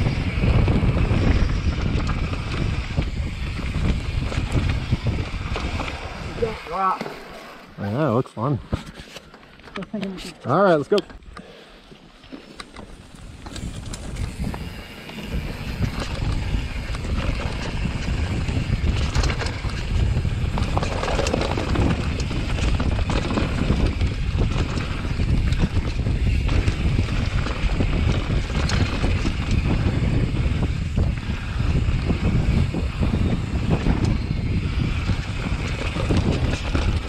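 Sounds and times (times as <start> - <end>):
wind rumble on microphone: 0.0 - 7.0, 12.9 - 37.0
tyres rattling over rocks: 0.1 - 8.1, 12.3 - 37.0.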